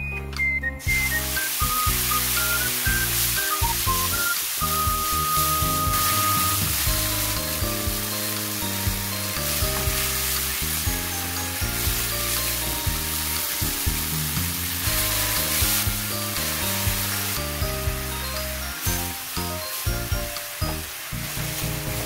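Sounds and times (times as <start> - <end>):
background music: 0.0 - 22.0
meat sizzling in a wok: 0.8 - 22.0.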